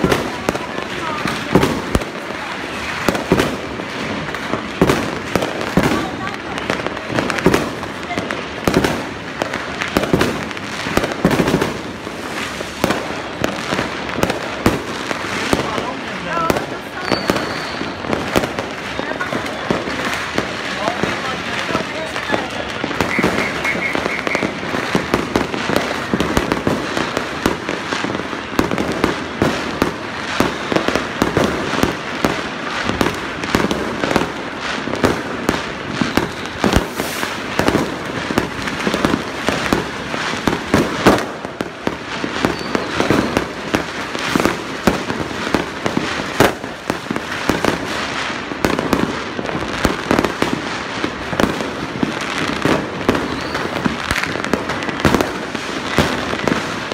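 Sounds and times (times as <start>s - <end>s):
fireworks crackling and banging: 0.0s - 56.9s.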